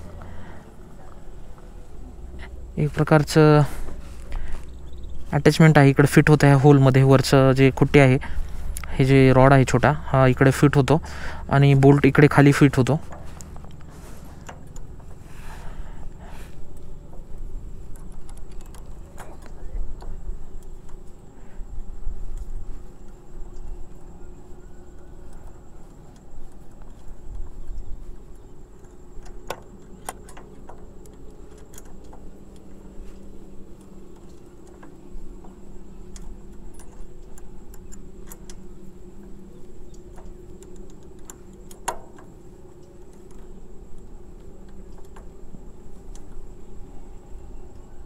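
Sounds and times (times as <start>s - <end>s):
allen key clicking against bolt: 16.7s - 21.2s, 28.4s - 46.4s.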